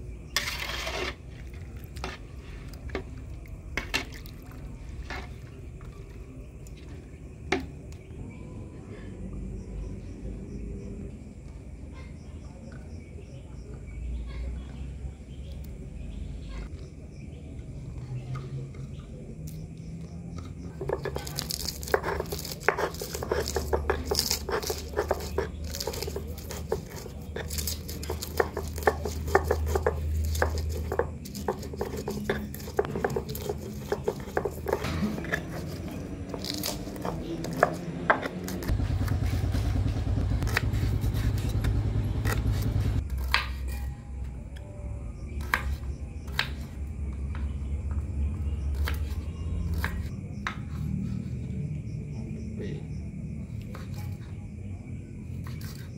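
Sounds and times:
stone pestle grinding in mortar: 0.4s - 1.2s, 20.7s - 39.7s, 40.4s - 43.4s
knife tapping on wooden board: 21.9s - 34.8s.

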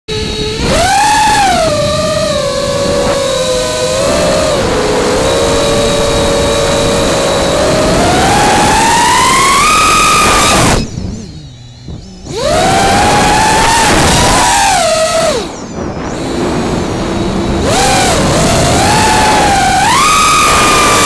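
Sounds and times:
quadcopter motors whining: 0.1s - 21.0s.

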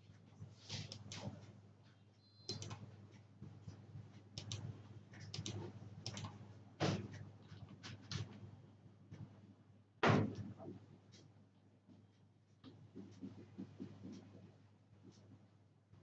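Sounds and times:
computer mouse clicks: 0.8s - 1.4s, 2.4s - 2.9s, 4.4s - 6.4s
keyboard key presses: 2.5s - 2.8s, 5.3s - 6.4s
loud knock: 10.0s - 10.5s.

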